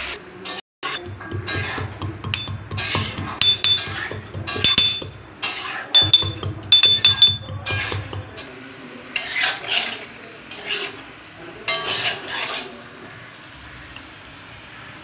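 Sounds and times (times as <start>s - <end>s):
spatula scraping in a wok: 0.0s - 15.0s
pestle clinking in steel cup: 1.3s - 5.2s, 6.0s - 8.3s.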